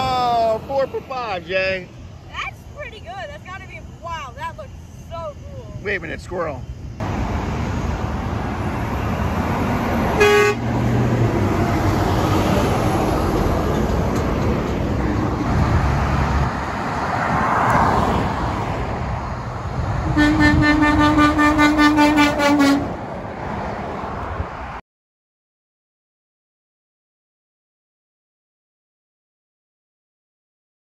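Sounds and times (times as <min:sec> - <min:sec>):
road traffic passing: 0:00.0 - 0:24.8
truck horn blast: 0:10.1 - 0:10.9, 0:20.0 - 0:23.0
short horn toot: 0:10.2 - 0:10.6.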